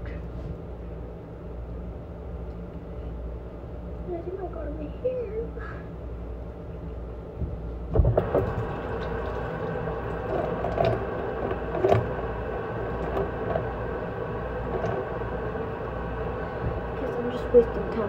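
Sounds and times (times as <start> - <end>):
water splashing: 8.0 - 12.3
tap water running into sink: 8.0 - 13.8.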